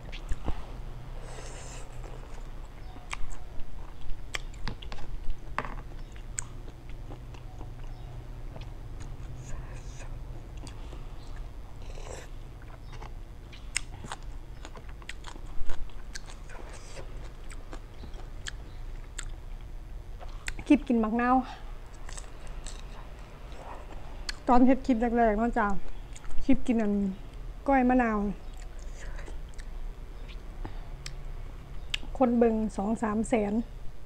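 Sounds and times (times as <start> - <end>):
wet chewing mouth sounds: 0.0 - 0.6, 1.2 - 20.8, 21.9 - 24.5, 28.4 - 31.2.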